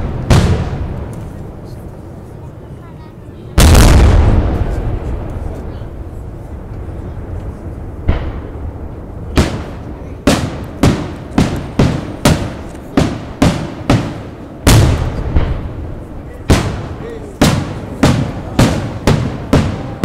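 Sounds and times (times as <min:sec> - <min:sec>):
low rumble: 0:03.6 - 0:13.4
firework shells bursting: 0:08.0 - 0:20.0.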